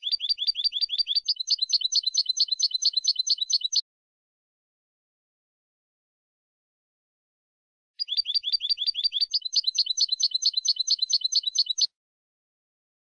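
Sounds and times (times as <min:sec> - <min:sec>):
finch singing: 0:00.0 - 0:03.8, 0:08.0 - 0:11.9.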